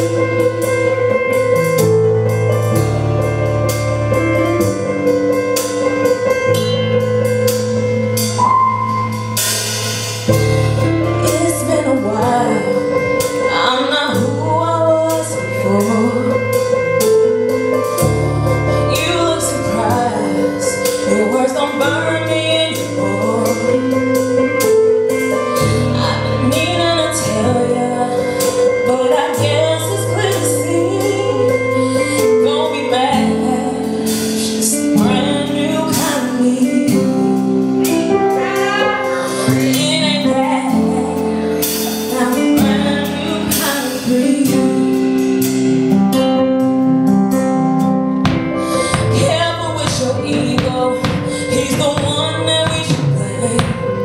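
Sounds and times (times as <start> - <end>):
drum kit with cymbals: 0.0 - 54.0
low bass notes: 0.0 - 54.0
woman singing: 10.9 - 16.8, 18.7 - 24.5, 25.6 - 45.6, 48.3 - 54.0.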